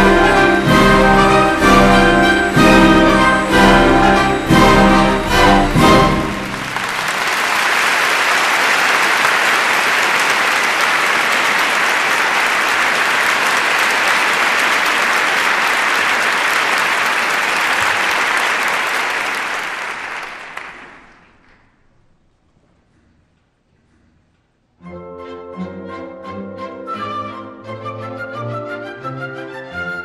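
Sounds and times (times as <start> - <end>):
audience applauding: 0.0 - 21.6.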